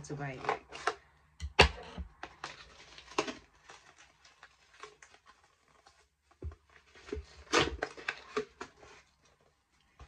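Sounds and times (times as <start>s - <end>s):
packaging rustling: 2.1s - 9.7s.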